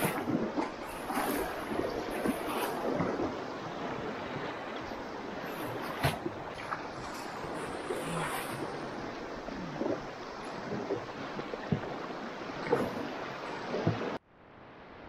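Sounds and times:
waves slapping against canoe hull: 0.0 - 14.2.

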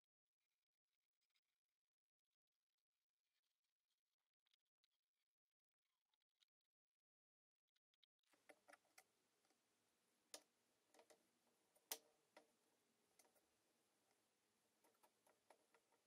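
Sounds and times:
faint irregular clicks and taps: 8.0 - 9.6, 10.3 - 16.0
faint room hiss: 8.3 - 16.0.

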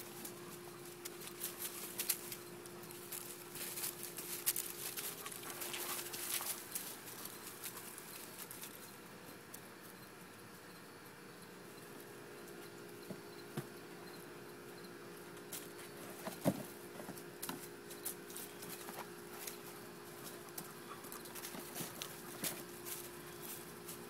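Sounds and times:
puppies scuffling: 0.0 - 9.0, 15.5 - 24.0.

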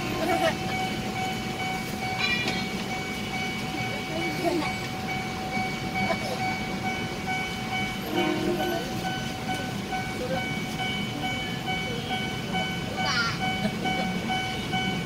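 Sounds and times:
constant whine: 0.0 - 15.0
train hum and low rumble: 0.0 - 15.0.

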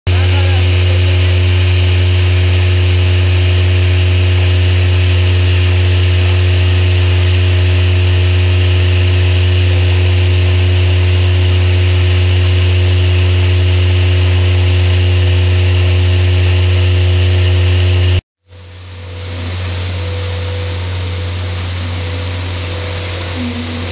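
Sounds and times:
pneumatic conveyor humming and hissing: 0.1 - 18.2.

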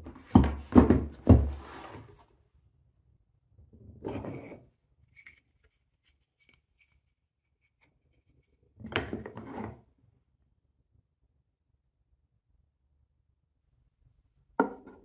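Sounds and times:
wooden block scraping: 0.2 - 2.2.

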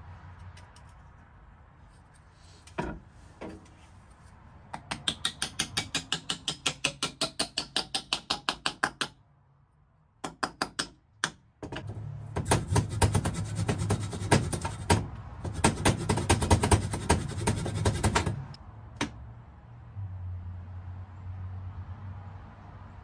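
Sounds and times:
hammer tapping on metal: 4.7 - 9.2, 10.2 - 18.4.

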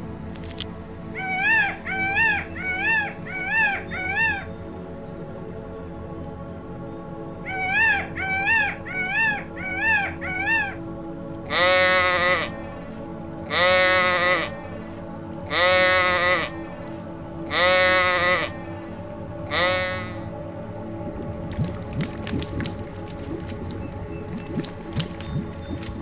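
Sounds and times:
animal calling: 11.5 - 14.9, 15.5 - 20.3.

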